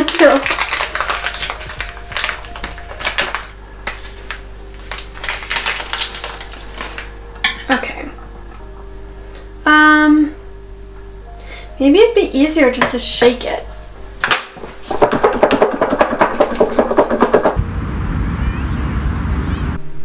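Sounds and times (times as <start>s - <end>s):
packet tearing and crinkling: 0.0s - 7.7s
soft background music: 0.0s - 17.4s.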